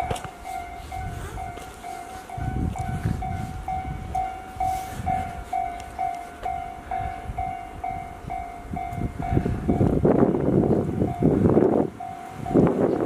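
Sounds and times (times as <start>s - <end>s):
level crossing bell ringing: 0.0s - 9.9s
train rumbling past: 0.0s - 13.0s.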